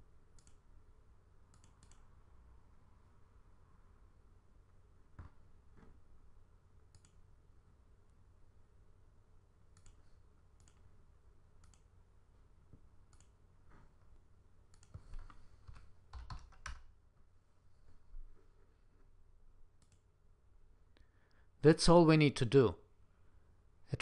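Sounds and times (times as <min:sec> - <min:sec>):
low steady hum: 0:00.0 - 0:24.0
computer mouse clicks: 0:00.3 - 0:00.6, 0:01.5 - 0:02.1, 0:06.9 - 0:07.2, 0:09.7 - 0:10.9, 0:11.6 - 0:11.9, 0:13.1 - 0:13.4, 0:14.7 - 0:16.8, 0:19.8 - 0:20.1.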